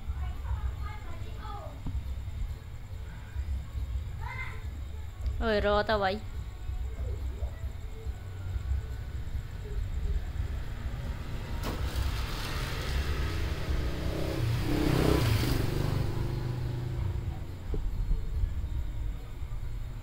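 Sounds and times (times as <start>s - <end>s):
motor vehicle passing: 9.0s - 18.6s.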